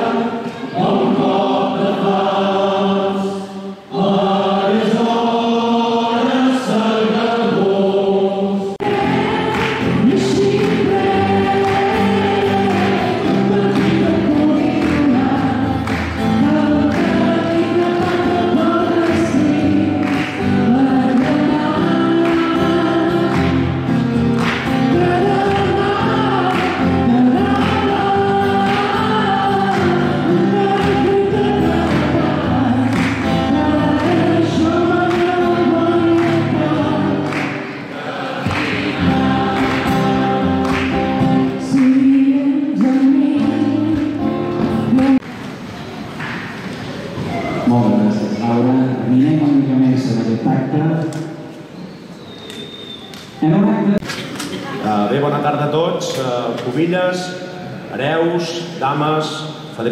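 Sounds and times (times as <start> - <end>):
person singing: 0.0 - 24.0, 24.6 - 37.6, 38.6 - 45.2
strummed acoustic guitar: 8.8 - 45.2.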